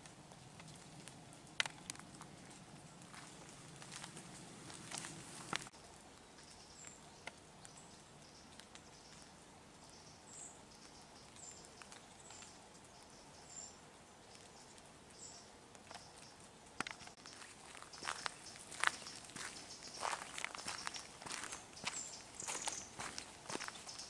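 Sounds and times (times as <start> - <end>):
quiet rural ambience: 0.0 - 24.0.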